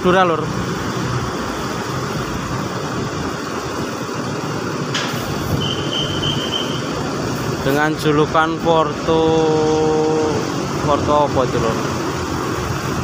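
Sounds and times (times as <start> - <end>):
bus diesel engine rumble: 0.0 - 13.0
high steady tone: 5.5 - 7.2.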